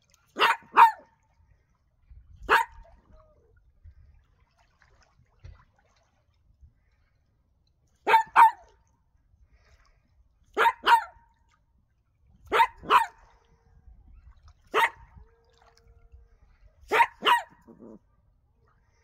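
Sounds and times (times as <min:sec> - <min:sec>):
dog barking: 0:00.4 - 0:01.1, 0:02.5 - 0:02.8, 0:08.1 - 0:08.7, 0:10.6 - 0:11.2, 0:12.5 - 0:13.2, 0:14.7 - 0:15.1, 0:16.9 - 0:18.0.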